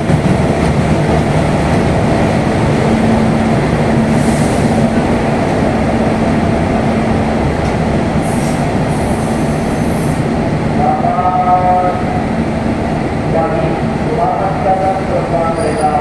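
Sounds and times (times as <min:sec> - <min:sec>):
diesel locomotive rumble: 0:00.0 - 0:16.0
train wheel squeals: 0:15.5 - 0:16.0.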